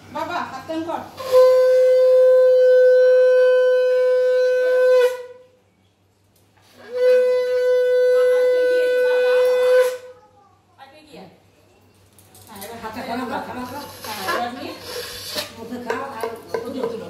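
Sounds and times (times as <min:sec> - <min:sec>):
conch shell blasts: 0:01.2 - 0:05.6, 0:06.8 - 0:10.2.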